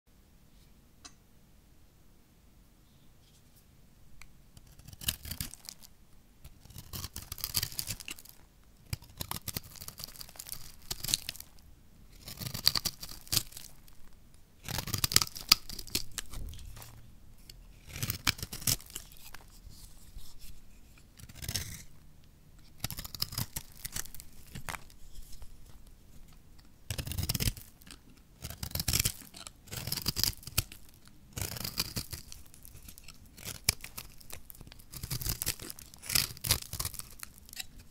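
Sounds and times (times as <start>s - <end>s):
knife blade cutting soap: 14.6s - 21.9s, 22.6s - 37.9s.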